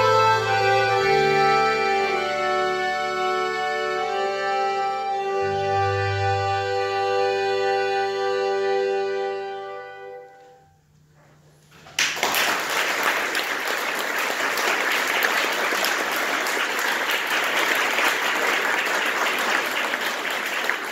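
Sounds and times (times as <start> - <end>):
accordion orchestra chord: 0.0 - 10.9
audience applause: 12.0 - 20.9.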